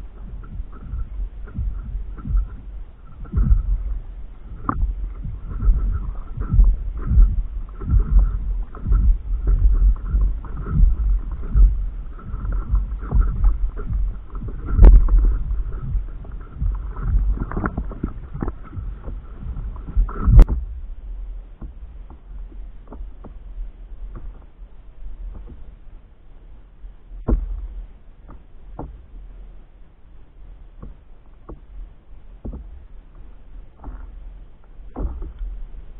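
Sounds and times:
wind buffeting microphone: 0.0s - 26.0s
water slapping against hull: 0.0s - 26.1s, 27.1s - 29.8s, 30.6s - 35.9s.

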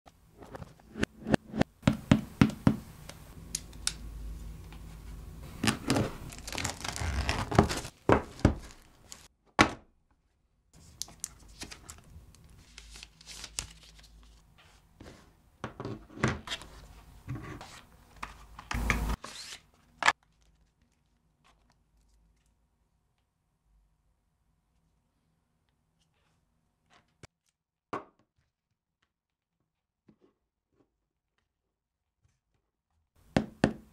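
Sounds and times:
packaging crinkling: 5.6s - 9.3s.

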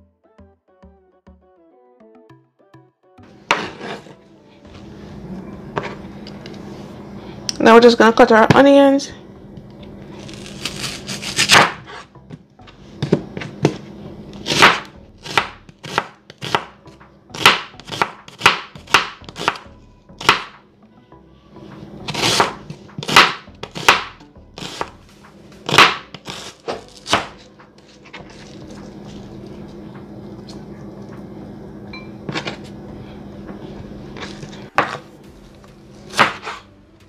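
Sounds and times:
knife slicing onion: 3.5s - 4.2s, 10.2s - 12.1s, 13.0s - 20.6s, 22.0s - 25.0s, 25.6s - 29.2s, 34.2s - 35.1s, 36.0s - 36.7s.

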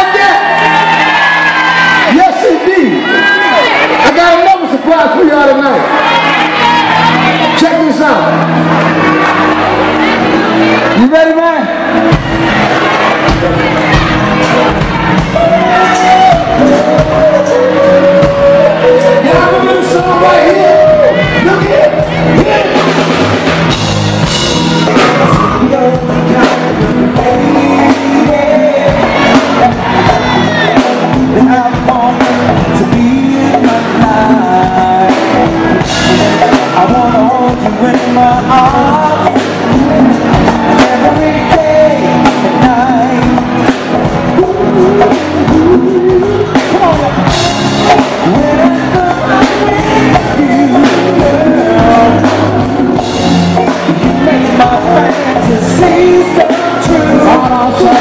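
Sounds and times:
drum kit: 0.0s - 58.0s
electric guitars: 0.0s - 58.0s
live band playing: 0.0s - 58.0s
man singing into a microphone: 15.3s - 22.9s, 24.8s - 58.0s.

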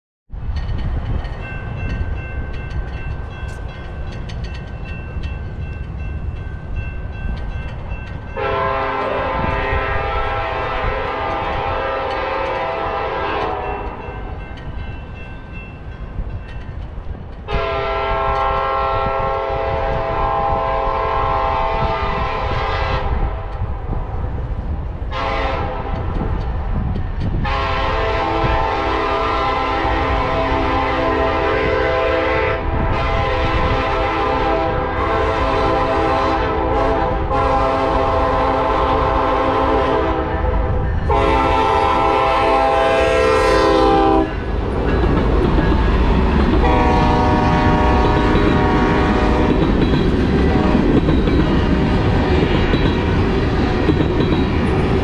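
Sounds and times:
low rumble of train: 0.3s - 55.0s
locomotive horn blasts: 8.4s - 14.2s, 17.5s - 23.6s, 25.1s - 26.2s, 27.4s - 44.4s, 46.6s - 49.6s, 50.5s - 51.0s.

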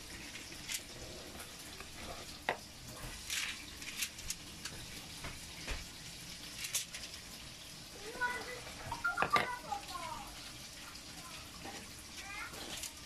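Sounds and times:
aluminium foil crinkling: 0.1s - 2.4s, 3.0s - 5.0s, 6.3s - 7.4s.

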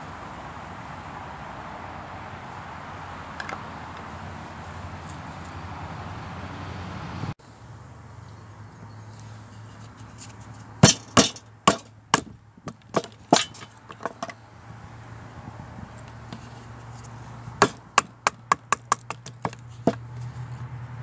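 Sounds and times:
knife splitting wood on board: 10.8s - 14.4s, 17.6s - 20.1s.

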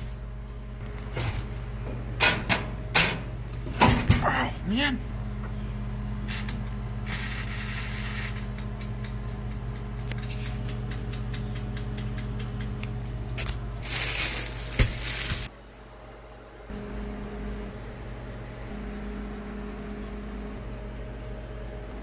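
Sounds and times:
electrical hum: 0.0s - 22.0s
timer knob ticking: 16.9s - 22.0s.

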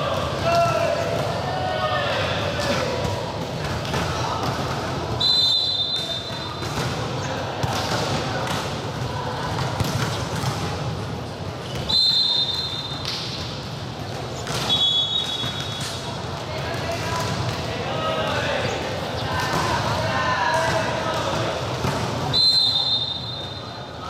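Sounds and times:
crowd chatter in a gym: 0.0s - 24.0s
referee's whistle blasts: 5.2s - 6.6s, 11.9s - 13.0s, 14.6s - 15.9s, 22.3s - 23.8s.

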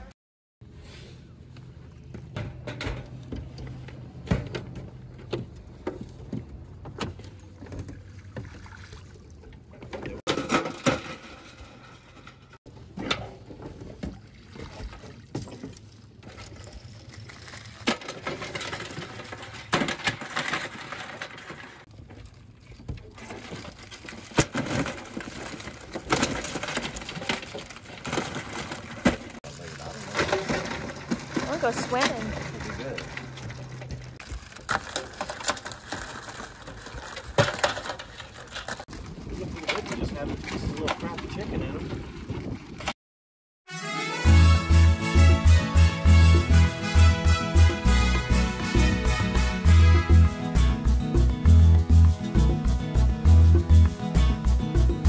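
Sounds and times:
water splashing and dripping: 7.6s - 9.8s, 13.8s - 17.9s.

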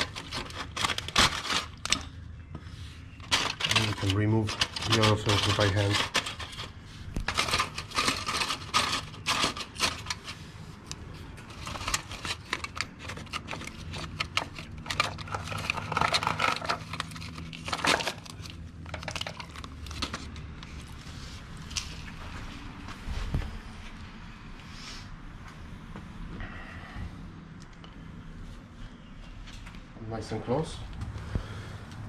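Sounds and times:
aluminium foil crinkling: 0.0s - 2.2s, 3.1s - 20.9s.

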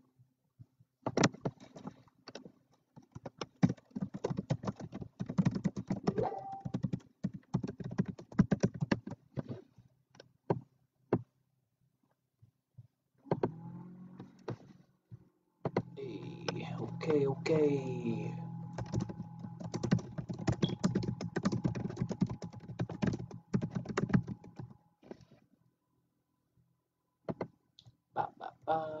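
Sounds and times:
typing on computer keyboard: 3.0s - 9.2s, 18.8s - 24.7s.

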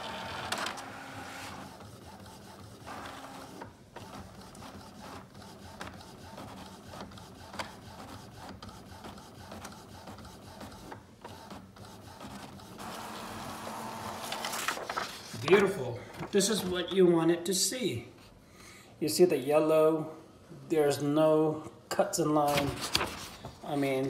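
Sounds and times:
printer whirring: 0.0s - 16.9s.

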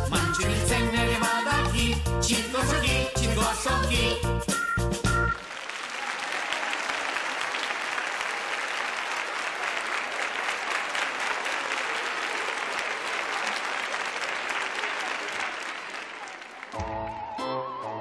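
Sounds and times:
audience applauding: 5.3s - 17.9s.

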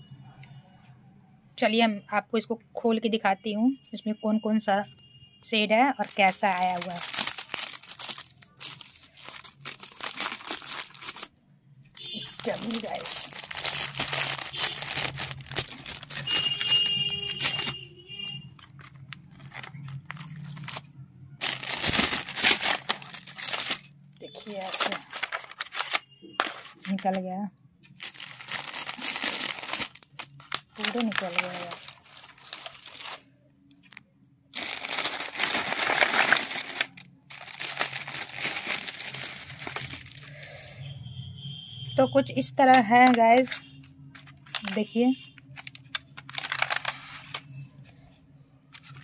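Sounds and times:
cellophane wrap crinkling: 6.0s - 11.3s, 12.0s - 27.2s, 27.9s - 40.4s, 42.4s - 47.6s, 48.7s - 49.0s.

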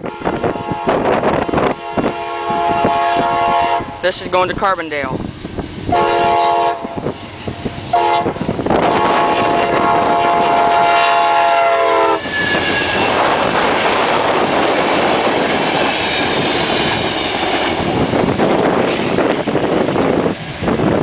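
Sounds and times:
wind noise on microphone: 0.0s - 21.0s
locomotive horn chord: 1.7s - 4.0s, 5.9s - 7.0s, 7.9s - 12.2s
train wheel clatter: 12.0s - 21.0s.

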